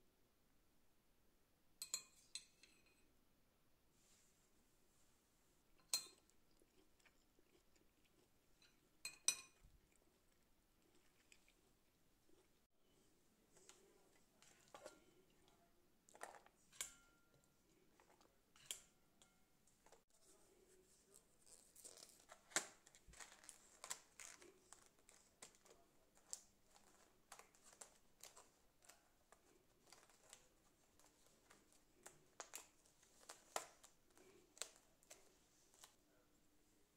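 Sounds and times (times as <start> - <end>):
foil trays crinkling: 21.8 - 28.5.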